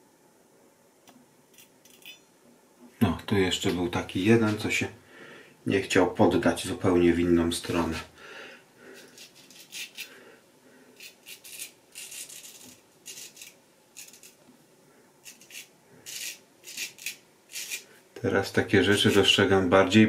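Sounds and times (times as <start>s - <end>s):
straight razor scraping stubble: 9.0s - 10.1s, 11.0s - 14.4s, 15.2s - 17.9s, 18.9s - 19.4s.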